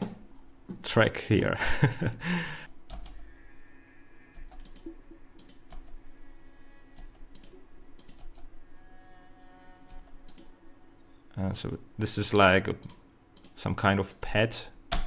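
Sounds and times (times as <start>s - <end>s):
computer mouse clicks: 4.4s - 6.0s, 7.0s - 8.5s, 9.9s - 10.5s, 12.8s - 13.6s.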